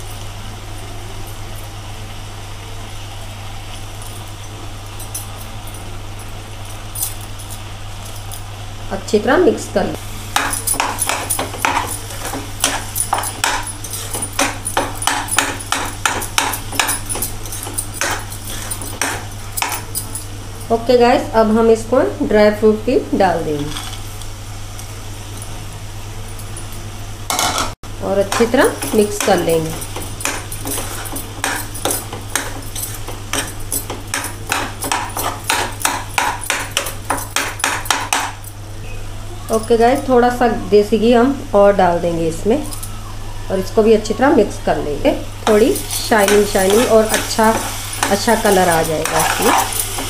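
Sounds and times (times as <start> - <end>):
metal spoon scraping a pot: 10.4 - 19.8, 28.3 - 36.0, 45.4 - 50.0
metal spoon scraping metal pot: 45.5 - 50.0.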